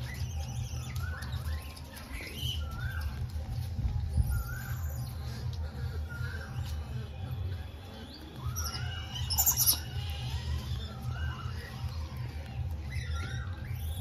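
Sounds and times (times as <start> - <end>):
shrill squeal: 8.3 - 11.9.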